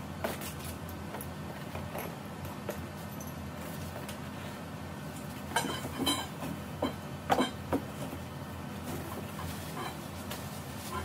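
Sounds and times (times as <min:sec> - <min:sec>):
low room hum: 0:00.0 - 0:11.0.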